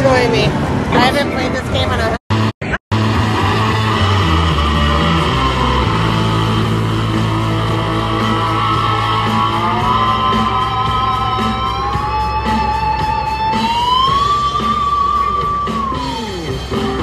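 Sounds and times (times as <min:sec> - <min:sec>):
rock song with electric guitar: 0:05.0 - 0:17.0.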